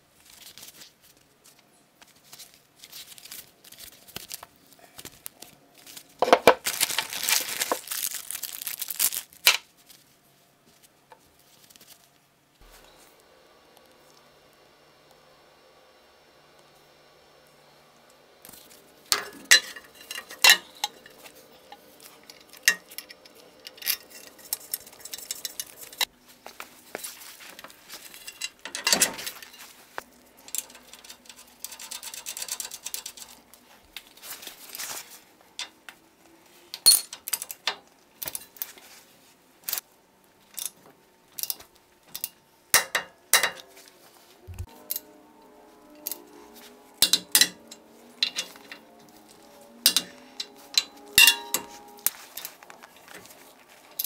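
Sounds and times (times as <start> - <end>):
bolts and tools clanking on metal: 19.1 - 26.1, 28.1 - 29.6, 36.8 - 38.6, 41.4 - 43.7, 47.0 - 48.8, 49.8 - 52.5.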